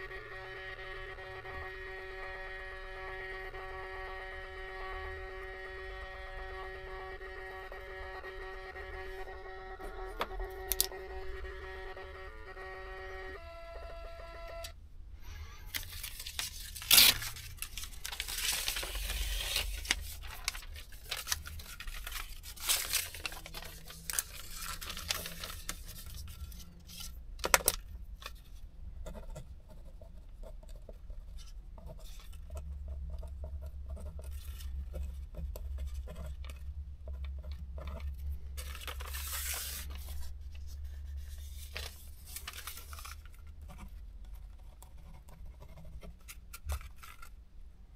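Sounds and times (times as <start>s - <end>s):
low steady hum: 0.0s - 47.9s
paper tearing: 15.7s - 27.7s, 38.6s - 40.3s
paper rustling: 15.7s - 28.6s, 38.6s - 43.9s, 46.1s - 47.4s
pen scratching on paper: 29.0s - 36.4s, 43.6s - 46.4s.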